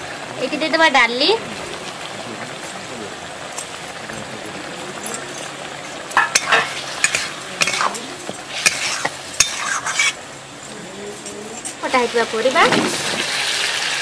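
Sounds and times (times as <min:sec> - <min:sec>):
bubbling sizzle: 0:00.0 - 0:14.0
spatula scraping a metal pan: 0:08.5 - 0:10.2.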